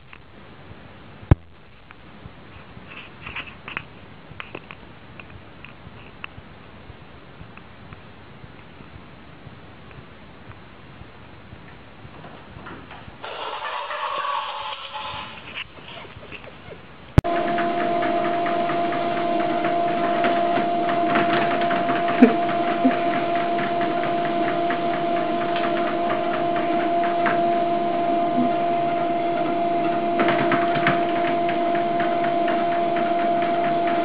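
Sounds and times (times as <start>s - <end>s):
treadmill belt ticking: 17.2s - 34.0s
treadmill motor humming: 17.2s - 34.0s.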